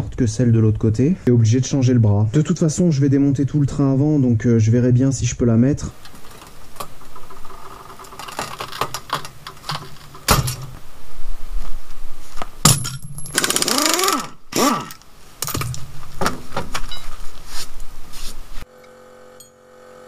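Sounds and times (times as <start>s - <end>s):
pneumatic impact wrench rattling: 12.7s - 15.8s.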